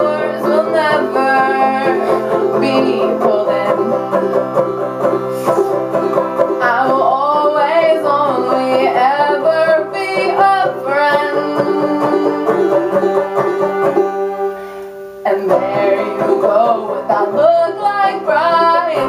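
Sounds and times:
woman singing: 0:00.0 - 0:04.6, 0:06.6 - 0:13.4, 0:15.2 - 0:19.0
banjo strumming: 0:00.0 - 0:19.0.

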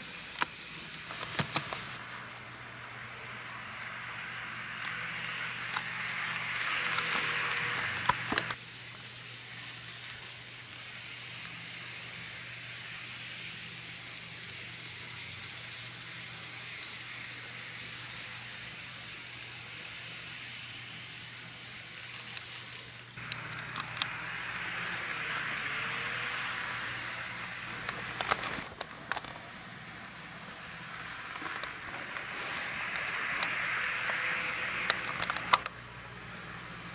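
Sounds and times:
model electric train whirring: 0:00.0 - 0:36.9
sharp clicks: 0:34.8 - 0:35.8.

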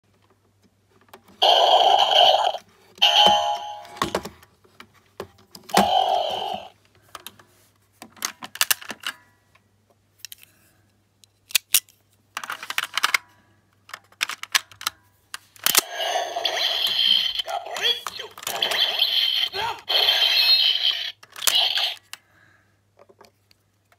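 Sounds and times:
toy electronic sound effects: 0:01.4 - 0:04.0, 0:05.7 - 0:06.7, 0:15.8 - 0:22.1
plastic toy clicks and rattles: 0:08.2 - 0:09.2, 0:11.2 - 0:13.2, 0:13.8 - 0:15.0, 0:20.5 - 0:22.2.

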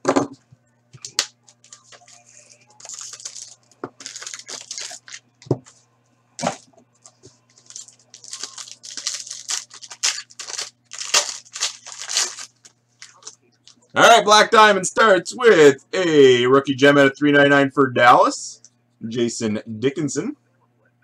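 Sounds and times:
steady low hum: 0:00.0 - 0:21.0
foil wrappers tearing and crinkling: 0:01.0 - 0:02.2, 0:02.8 - 0:05.2, 0:07.5 - 0:13.4.

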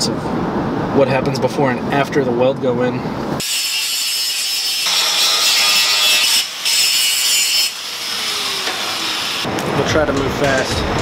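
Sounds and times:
angle grinder grinding steel: 0:03.4 - 0:09.5.

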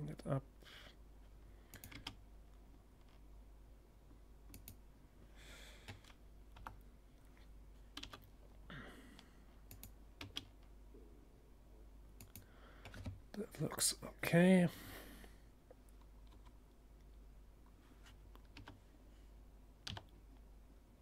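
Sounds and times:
faint keyboard and mouse clicks: 0:01.7 - 0:03.3, 0:04.4 - 0:04.8, 0:05.8 - 0:08.3, 0:09.2 - 0:10.8, 0:12.2 - 0:13.7, 0:15.7 - 0:18.8, 0:19.8 - 0:20.5.

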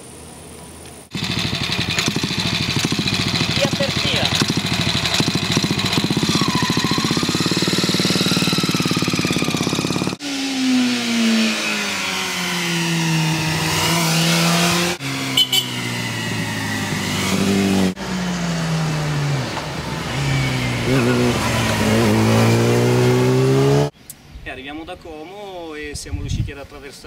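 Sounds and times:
single-cylinder engine running: 0:01.1 - 0:10.2
motorcycle engine through a bend: 0:01.1 - 0:24.0.

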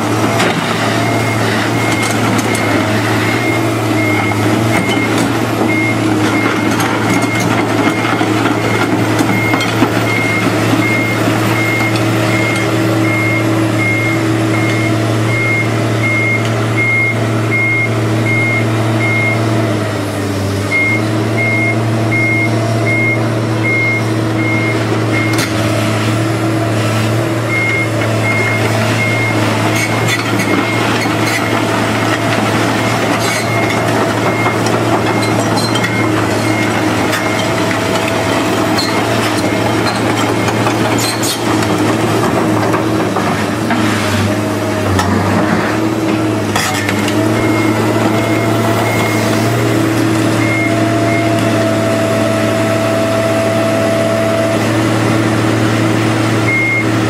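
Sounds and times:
diesel engine running: 0:00.0 - 0:57.0
travel alarm beeping: 0:01.0 - 0:19.4, 0:20.7 - 0:25.4, 0:27.5 - 0:31.6, 0:47.3 - 0:49.4, 0:56.4 - 0:57.0.

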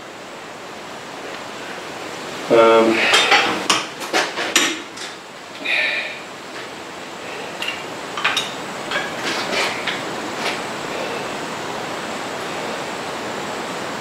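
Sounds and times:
metal clanks of bench vise: 0:03.1 - 0:05.2, 0:07.6 - 0:10.0.

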